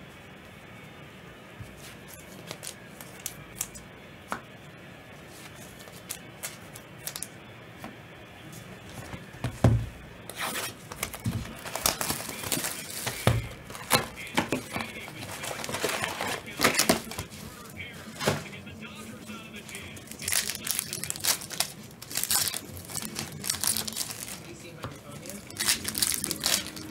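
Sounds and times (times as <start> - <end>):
wrappers tearing and crinkling: 2.0 - 3.8, 5.8 - 7.3, 10.3 - 17.5, 19.6 - 26.9
cards clicking and tapping: 5.4 - 8.0, 10.8 - 17.4.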